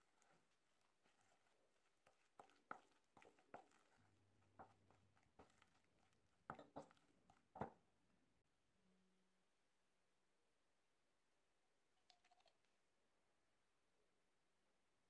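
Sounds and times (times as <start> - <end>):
spatula scraping and tapping bowl: 1.0 - 5.8, 6.5 - 7.7.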